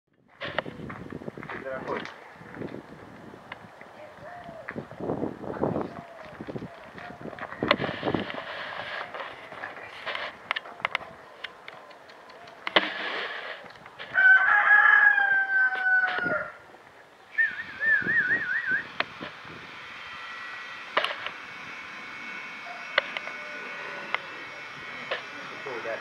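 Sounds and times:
rooster crowing: 0:14.1 - 0:16.6, 0:22.3 - 0:24.7
wavering high call: 0:17.3 - 0:19.0, 0:21.7 - 0:25.1.

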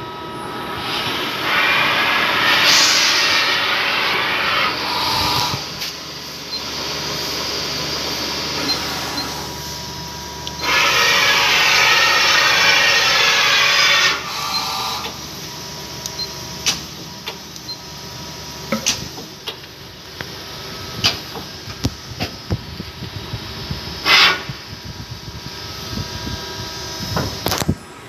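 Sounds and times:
lathe hum with high whine: 0:00.0 - 0:28.0
loud hiss: 0:00.8 - 0:06.4, 0:10.6 - 0:15.3.

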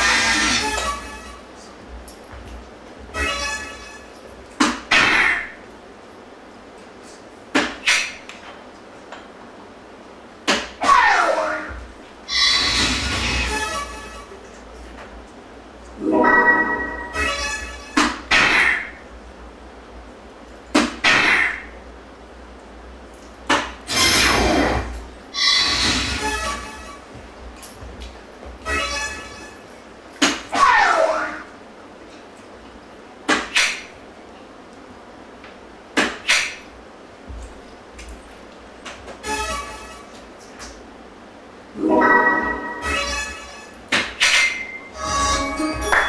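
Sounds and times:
dartboard scoring sound effect: 0:44.6 - 0:46.0.

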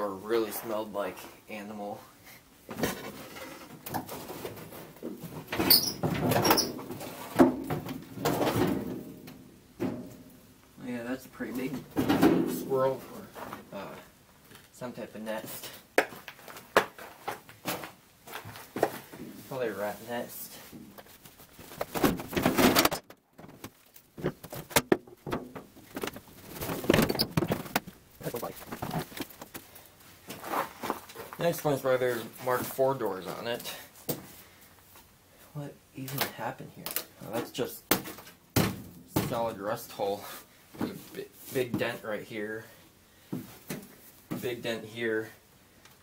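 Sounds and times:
scraping and rustling debris: 0:02.7 - 0:10.4, 0:16.2 - 0:33.5
short high squeaks: 0:05.6 - 0:06.8.

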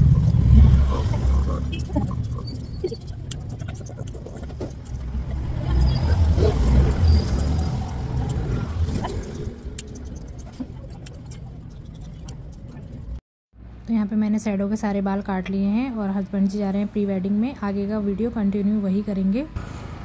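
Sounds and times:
scissors snipping fur: 0:01.8 - 0:05.0, 0:07.4 - 0:13.0.

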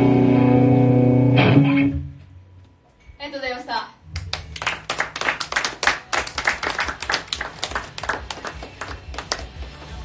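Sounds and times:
people clapping: 0:04.1 - 0:09.8.

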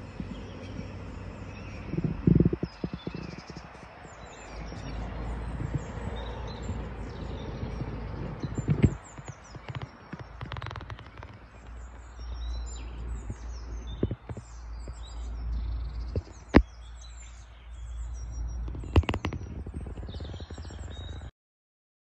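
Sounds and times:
steady low rumble: 0:00.0 - 0:16.6
songbirds chirping: 0:00.0 - 0:21.3
sharp clicks: 0:07.7 - 0:12.0.

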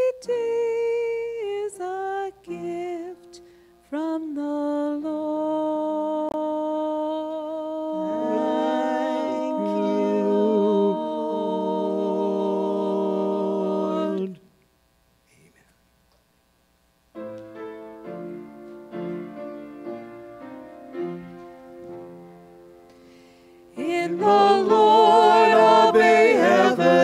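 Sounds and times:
person singing: 0:00.0 - 0:14.5, 0:23.8 - 0:27.0
violin and keyboard chord: 0:07.9 - 0:12.3, 0:17.2 - 0:26.6.

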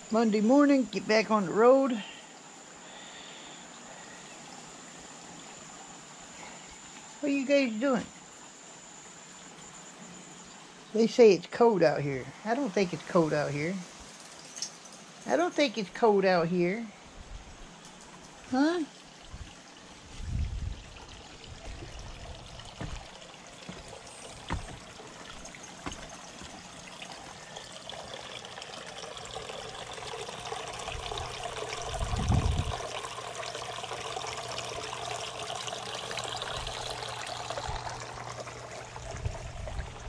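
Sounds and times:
water trickling in fountain: 0:00.0 - 0:40.0
low thumps: 0:21.6 - 0:26.6.

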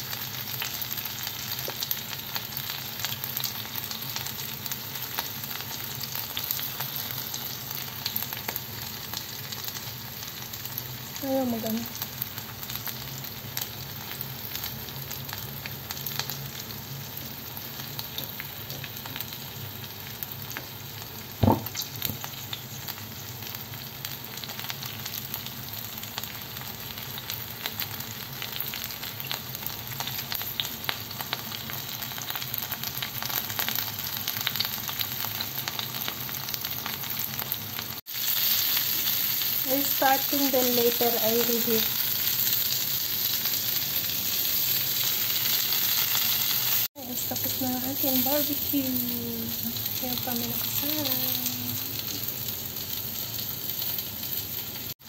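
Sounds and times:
chicken sizzling on grill pan: 0:00.0 - 0:55.0
loud knock: 0:21.4 - 0:21.7.

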